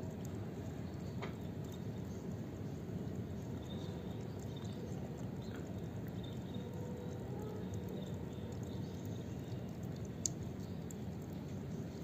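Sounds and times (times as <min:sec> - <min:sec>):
low background rumble: 0:00.0 - 0:12.0
water dripping: 0:00.0 - 0:12.0
cat licking: 0:02.4 - 0:12.0.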